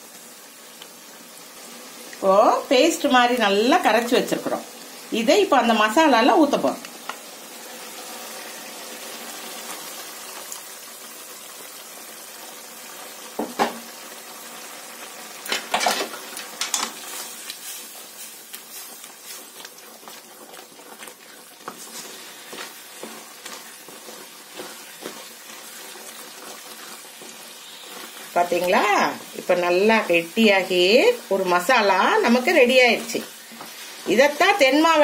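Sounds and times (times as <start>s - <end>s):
food sizzling in a pan: 0.0s - 35.0s
wooden spatula scraping metal pan: 21.6s - 28.7s.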